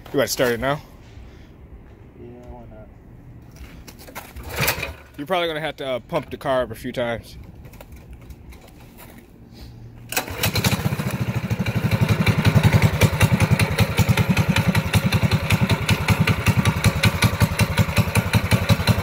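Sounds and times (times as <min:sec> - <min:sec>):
small engine starting and running: 0:04.4 - 0:05.2, 0:10.1 - 0:19.0.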